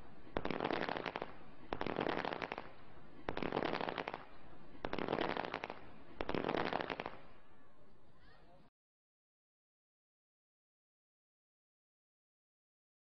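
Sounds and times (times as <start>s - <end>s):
fireworks crackling bangs: 0.0s - 8.3s.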